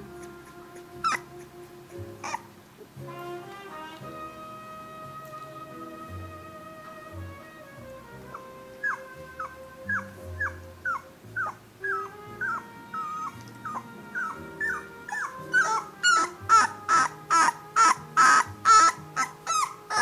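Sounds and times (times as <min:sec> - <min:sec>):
puppy whimpering: 0:00.0 - 0:02.5, 0:08.3 - 0:20.0.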